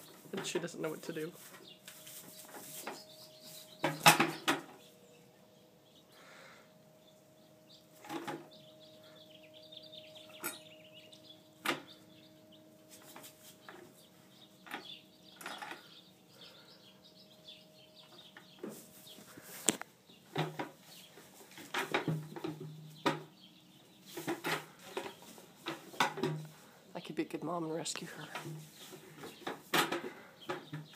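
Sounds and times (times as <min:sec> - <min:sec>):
faint chirps: 0:01.1 - 0:07.9
plastic bucket knocking and scraping: 0:21.6 - 0:23.3.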